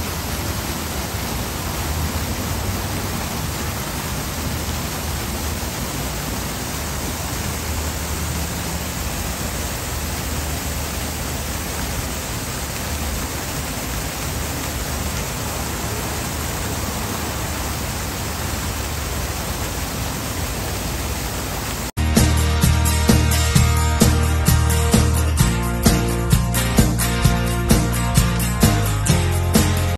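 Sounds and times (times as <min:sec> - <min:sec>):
fountain water splashing into pool: 0:00.0 - 0:22.0.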